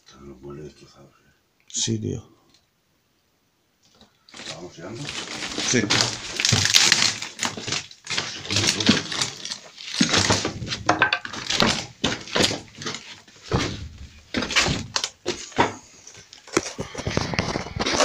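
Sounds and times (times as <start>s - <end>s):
rustling: 3.9s - 18.0s
footsteps crunching over debris: 4.3s - 18.0s.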